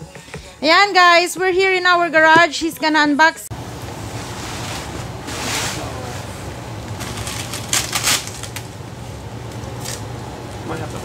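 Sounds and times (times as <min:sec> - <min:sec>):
steady low hum: 0:00.0 - 0:11.0
bubble wrap crinkling: 0:04.2 - 0:08.8.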